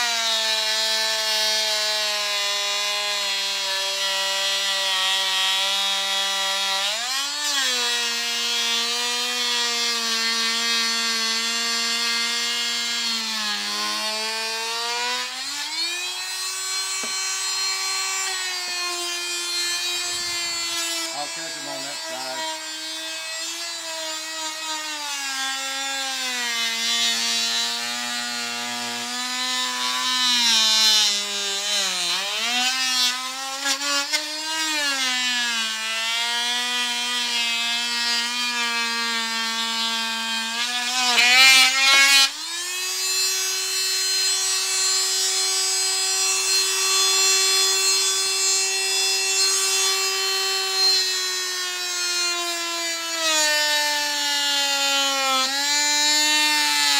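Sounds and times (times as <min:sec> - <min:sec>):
electric saw cutting bone: 0:00.0 - 0:56.9
harsh rasp: 0:16.7 - 0:23.9.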